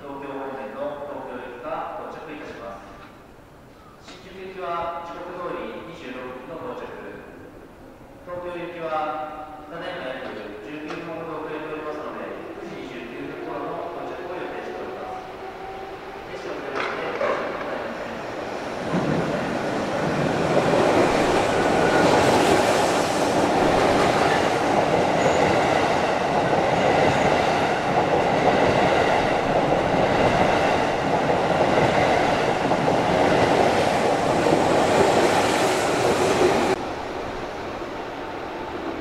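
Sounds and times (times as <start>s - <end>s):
train wheels running on rails: 14.2s - 36.8s.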